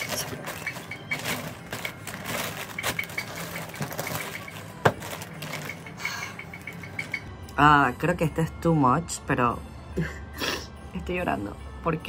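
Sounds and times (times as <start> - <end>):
wrapping paper crinkling: 0.0 - 6.8.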